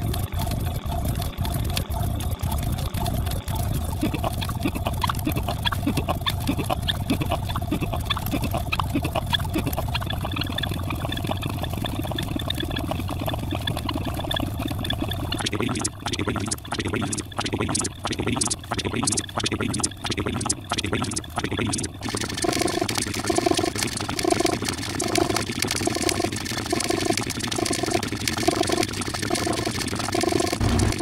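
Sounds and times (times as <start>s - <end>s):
steady low hum: 0.0s - 22.1s, 30.6s - 31.0s
rapid clicks: 0.0s - 31.0s.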